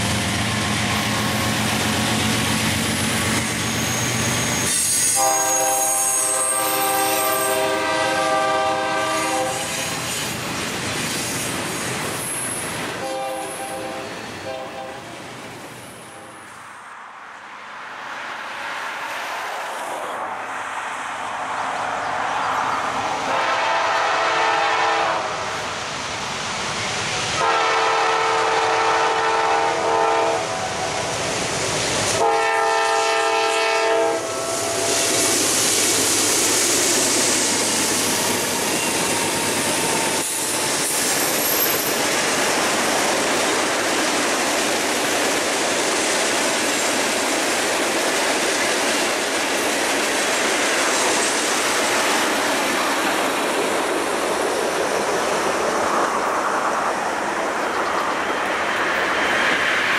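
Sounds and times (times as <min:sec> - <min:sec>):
train wheels on rails: 0:00.0 - 0:59.9
locomotive horn blasts: 0:05.0 - 0:09.8, 0:13.0 - 0:15.0, 0:23.3 - 0:25.3, 0:27.4 - 0:30.8, 0:32.2 - 0:35.2.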